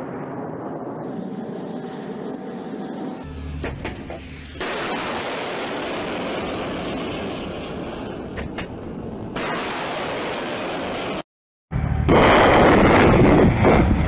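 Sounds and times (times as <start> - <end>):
low hum: 11.7 - 14.0.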